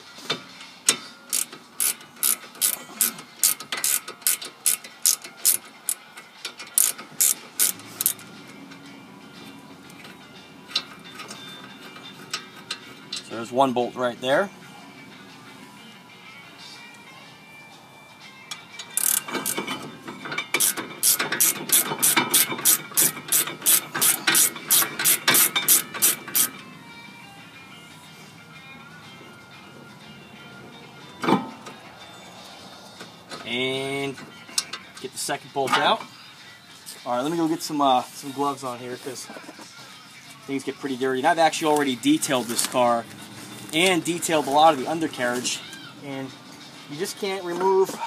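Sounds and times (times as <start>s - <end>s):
ratchet wrench clicking: 1.3s - 8.3s, 18.5s - 19.8s, 20.4s - 26.6s.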